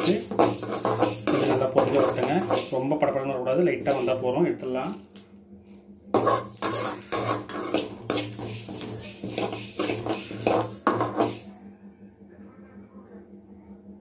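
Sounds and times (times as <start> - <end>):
metal ladle scraping seeds in pan: 0.0 - 3.1, 3.8 - 11.6.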